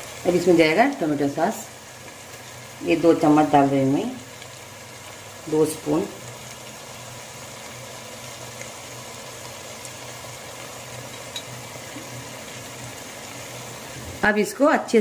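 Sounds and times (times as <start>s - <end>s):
vegetables sizzling in a pan: 0.0s - 15.0s.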